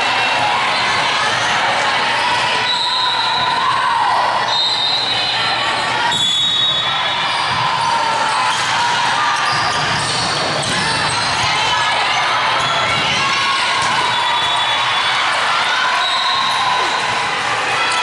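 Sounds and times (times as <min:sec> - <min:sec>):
crowd chatter: 0:00.0 - 0:18.0
volleyball being played: 0:00.0 - 0:18.0
sneakers squeaking on court floor: 0:09.4 - 0:11.5.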